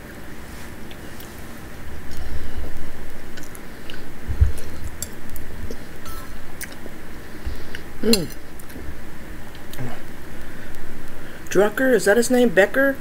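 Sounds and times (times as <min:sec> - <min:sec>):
close-up chewing: 0:03.3 - 0:05.9.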